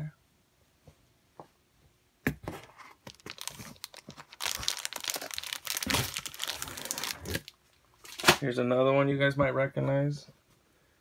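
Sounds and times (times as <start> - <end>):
magazine paper crinkling: 2.7 - 8.4
sharp paper crackles: 3.1 - 8.4.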